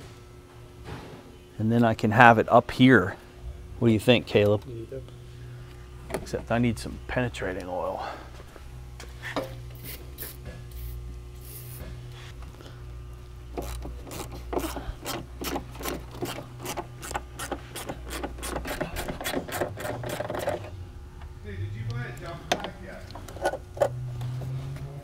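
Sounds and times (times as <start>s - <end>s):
aerosol spray hissing: 9.8s - 11.9s.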